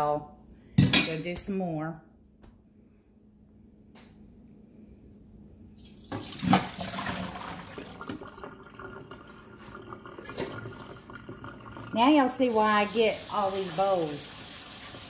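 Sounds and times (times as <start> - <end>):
water splashing into metal sink: 5.8 - 15.0.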